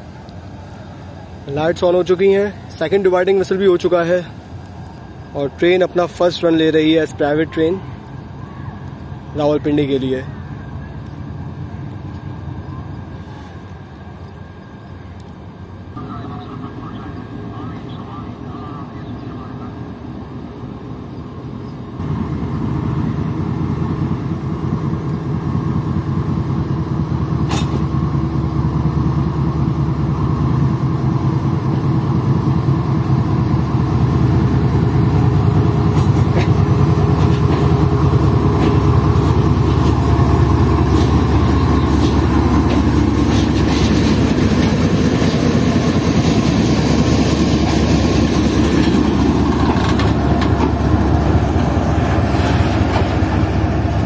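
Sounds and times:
locomotive engine droning: 0:00.0 - 0:54.0
train wheels clicking on rail joints: 0:27.3 - 0:28.2, 0:34.7 - 0:54.0.

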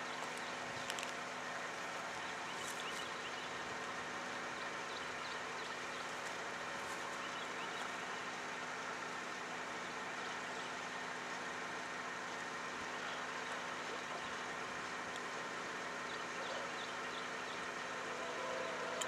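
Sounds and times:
distant diesel locomotive drone: 0:00.0 - 0:19.0.

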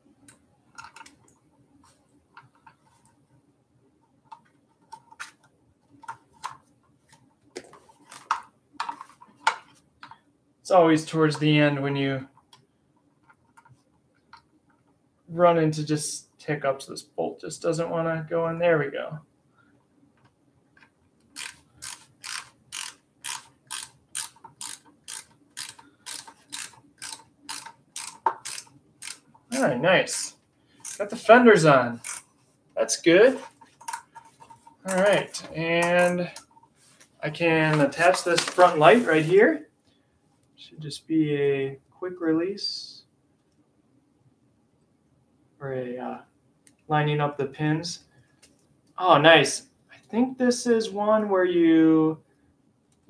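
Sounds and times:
hand tool clicking on metal: 0:21.4 - 0:29.6, 0:34.9 - 0:36.4.

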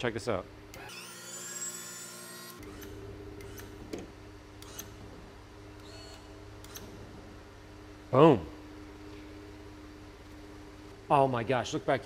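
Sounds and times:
electric motor whining: 0:00.8 - 0:03.9.

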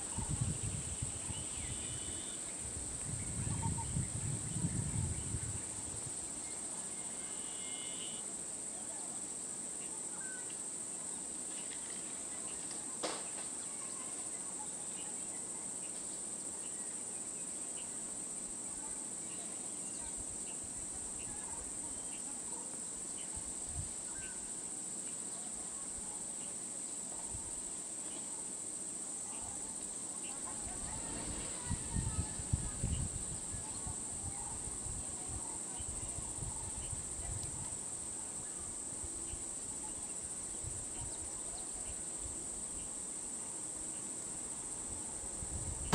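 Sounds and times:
insect chorus drone: 0:00.0 - 0:45.9.

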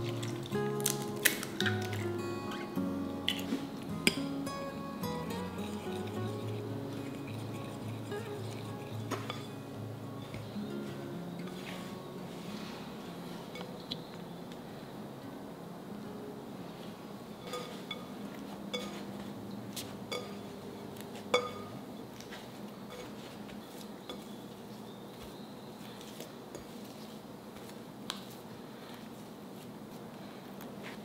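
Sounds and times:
fork clinking against glass bowl: 0:01.6 - 0:09.7, 0:17.4 - 0:19.1, 0:20.1 - 0:20.4, 0:21.3 - 0:21.8
dough being kneaded by hand: 0:05.2 - 0:13.3, 0:17.5 - 0:31.0.

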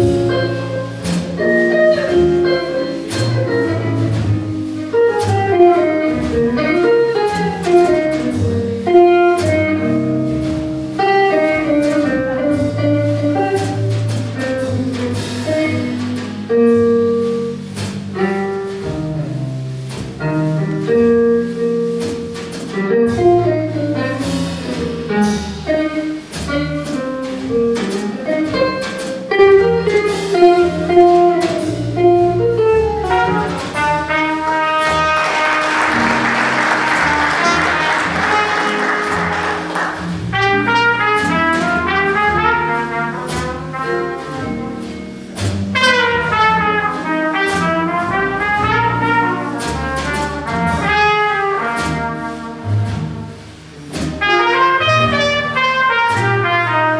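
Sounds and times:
double bass: 0:00.0 - 0:56.9
drum kit: 0:00.0 - 0:56.9.

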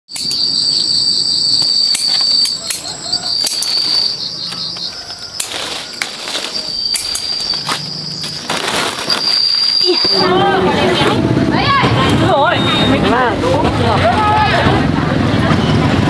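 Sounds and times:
insects trilling: 0:00.1 - 0:10.4
clicks and rustles of branches: 0:01.9 - 0:10.2.

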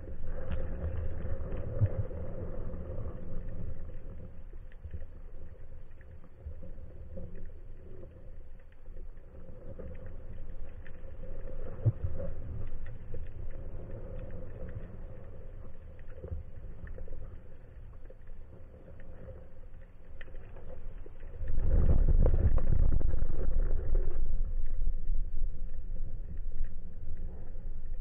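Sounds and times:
faint clicks and crackles: 0:00.0 - 0:28.0.

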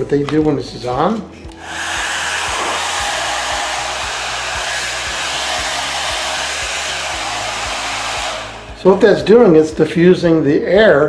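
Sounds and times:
hair dryer blowing: 0:01.5 - 0:09.8.

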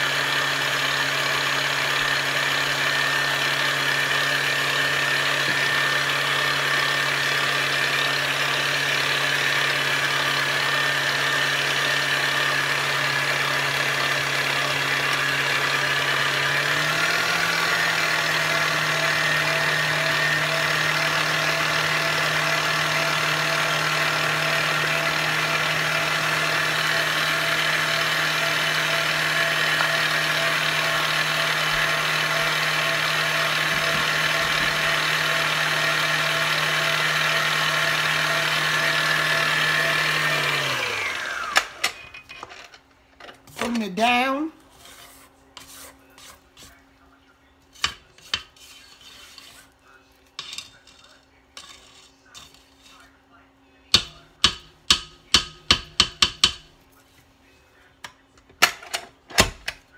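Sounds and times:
electric mixer motor: 0:00.0 - 0:42.0.

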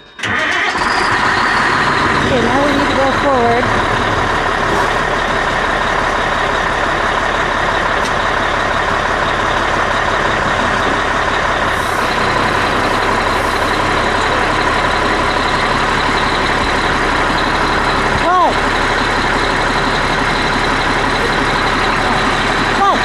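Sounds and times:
truck diesel engine running: 0:00.0 - 0:23.0.

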